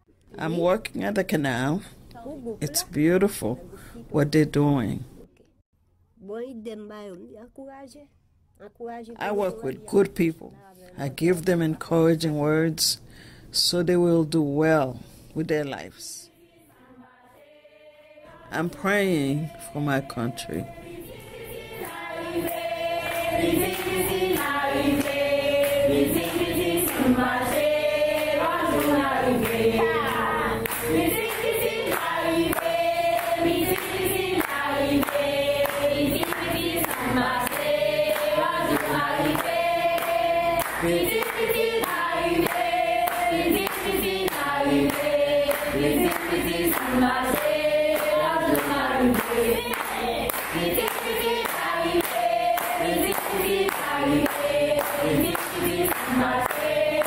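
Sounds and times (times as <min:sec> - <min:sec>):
choir singing: 0:16.2 - 0:57.0
rhythmic beat: 0:18.4 - 0:57.0.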